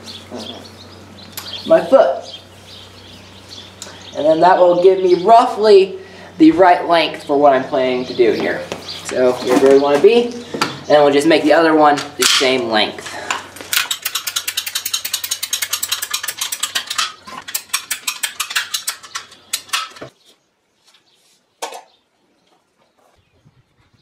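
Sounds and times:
pipe cutter ratchet clicking: 0:13.7 - 0:20.0.

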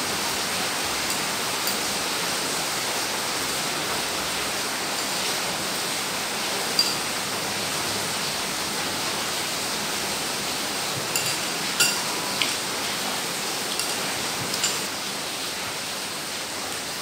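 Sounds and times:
utensils clinking on porcelain bowls: 0:01.0 - 0:02.0, 0:06.7 - 0:07.2, 0:11.0 - 0:12.6, 0:13.7 - 0:14.9.

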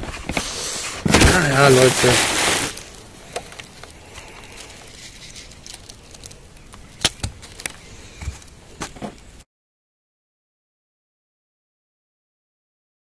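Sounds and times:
faint rustle: 0:00.0 - 0:09.4.

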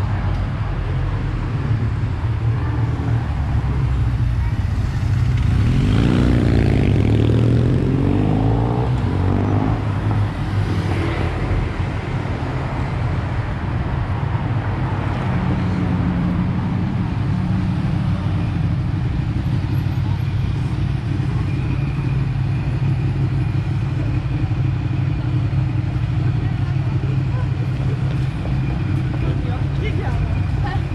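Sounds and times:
low engine hum of traffic: 0:00.0 - 0:30.9
vehicle passing: 0:02.8 - 0:12.5.

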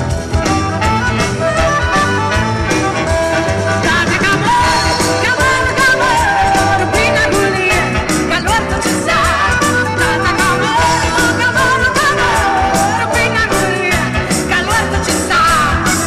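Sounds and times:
wavering lead melody: 0:00.0 - 0:15.0
drums beat: 0:00.0 - 0:16.0
funk rock band playing: 0:00.0 - 0:16.0
person singing: 0:03.5 - 0:16.0.

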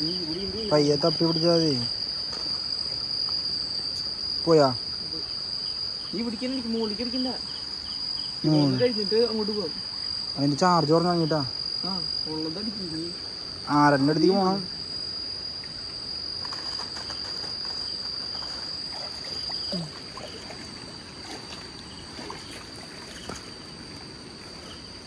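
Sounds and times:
night insects chirring: 0:00.0 - 0:25.0.

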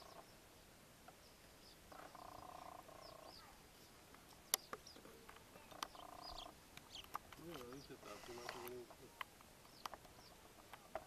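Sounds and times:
frogs croaking: 0:00.0 - 0:00.4, 0:01.1 - 0:03.6, 0:04.5 - 0:10.4
high bird chirps: 0:01.2 - 0:08.4.

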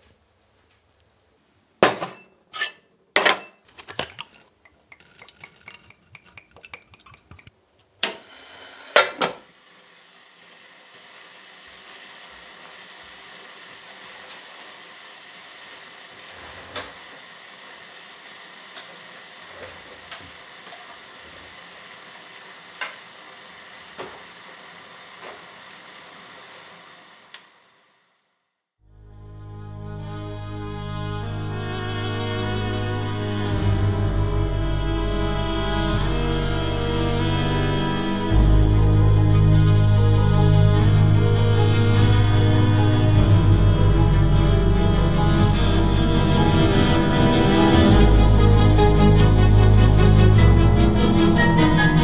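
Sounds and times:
pot hissing on stove: 0:08.2 - 0:27.9.

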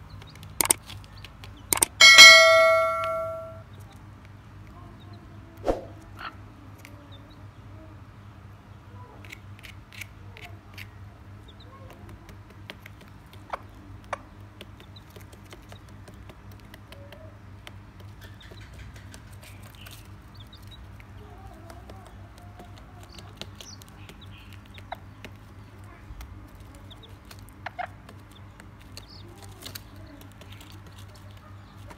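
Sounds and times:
chicks peeping: 0:09.2 - 0:31.9.

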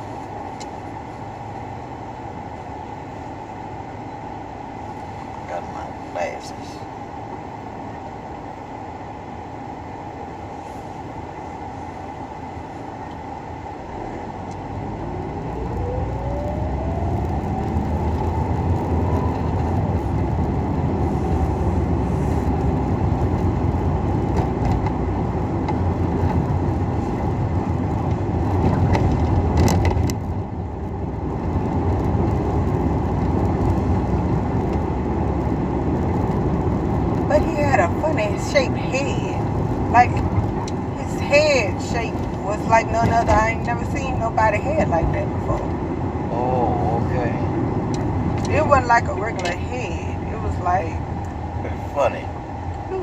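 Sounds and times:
car engine and tyre rumble: 0:00.0 - 0:53.0
rising whine: 0:13.8 - 0:23.7.

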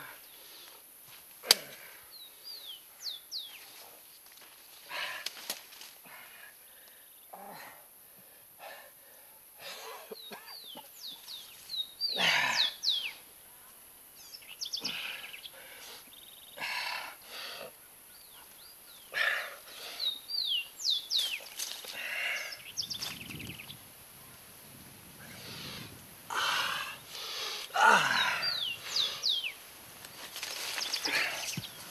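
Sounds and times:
birds whistling calls: 0:10.2 - 0:13.2, 0:20.0 - 0:21.5, 0:28.1 - 0:29.6
man gasping breaths: 0:25.3 - 0:29.3.

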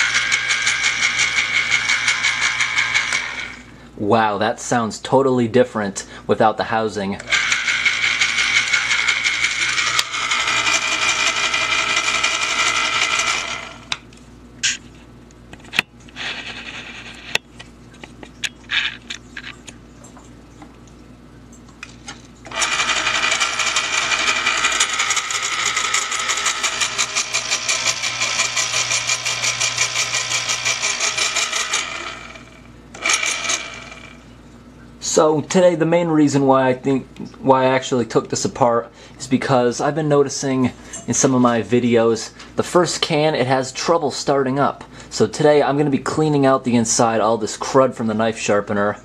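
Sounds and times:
electric can opener motor running: 0:00.0 - 0:03.7, 0:07.2 - 0:14.0, 0:22.5 - 0:34.2.

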